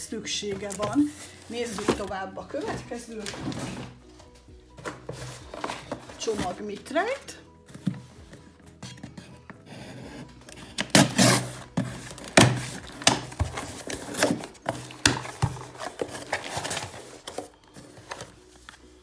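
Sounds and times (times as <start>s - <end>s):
knife slitting packing tape: 10.8s - 11.6s.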